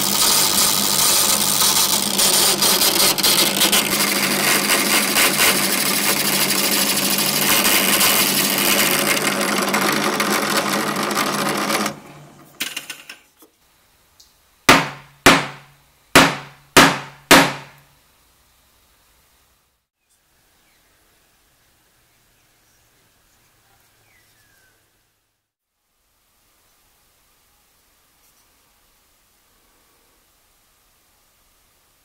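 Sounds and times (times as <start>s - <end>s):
drill bit grinding metal: 0.0s - 12.0s
drill press motor hum: 0.0s - 12.6s
sharp knocks: 14.7s - 17.8s.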